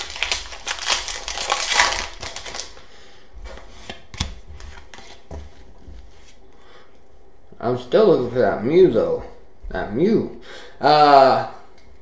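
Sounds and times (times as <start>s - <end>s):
foil wrapper crinkling: 0.0s - 2.8s.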